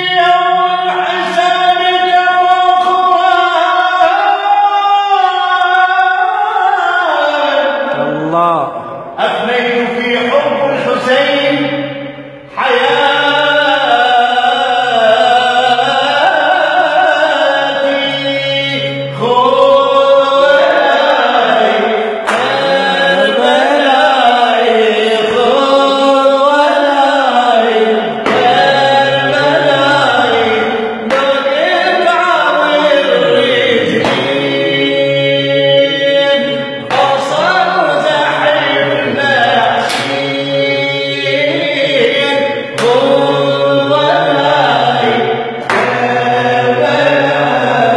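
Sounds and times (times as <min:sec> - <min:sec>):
man singing unaccompanied: 0:00.0 - 0:47.9.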